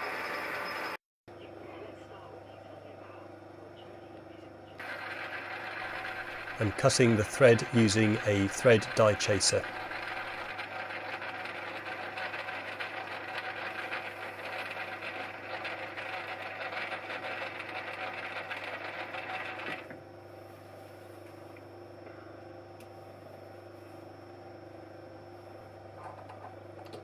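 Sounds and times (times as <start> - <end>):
rasping metal cutting on lathe: 4.8 - 19.8
lathe humming: 4.8 - 21.4.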